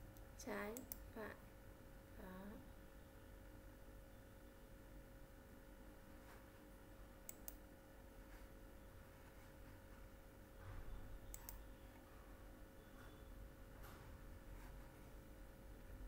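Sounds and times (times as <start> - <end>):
steady low hum: 0.0 - 16.0
computer mouse clicking: 0.1 - 1.1, 7.2 - 7.7, 11.3 - 11.7.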